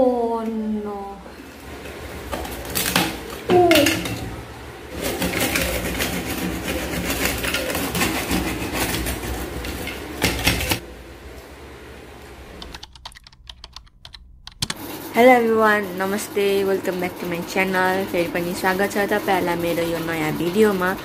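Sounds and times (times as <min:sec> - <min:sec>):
knife scraping on steel plate: 0:04.9 - 0:10.8.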